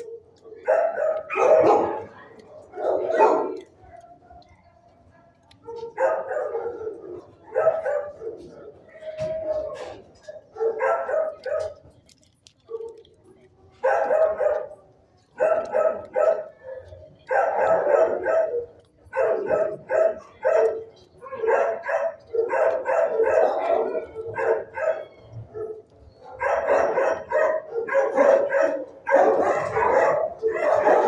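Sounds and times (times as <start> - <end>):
dog barking: 0.0 - 3.6, 5.6 - 8.6, 10.3 - 11.8, 13.8 - 14.8, 15.4 - 31.0.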